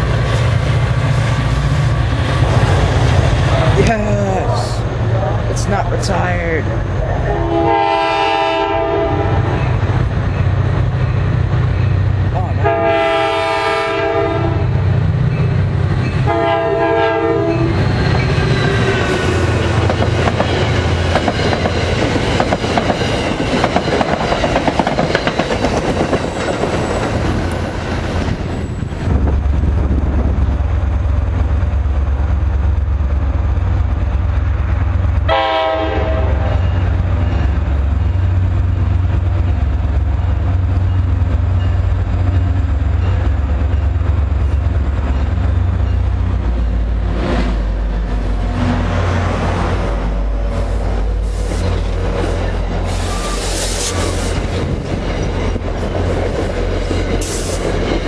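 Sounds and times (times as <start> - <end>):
diesel locomotive engine drone: 0.0 - 58.0
train wheel and rail noise: 0.0 - 58.0
train horn blasts: 7.3 - 9.5, 12.6 - 14.7, 16.3 - 17.7, 35.3 - 36.6.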